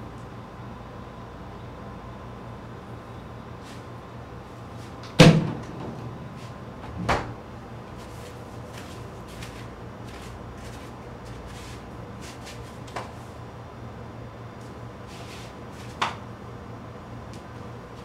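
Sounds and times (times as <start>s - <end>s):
steady low hum: 0.0s - 18.0s
cabinet door shutting with a thud: 5.2s - 5.8s, 6.9s - 7.4s.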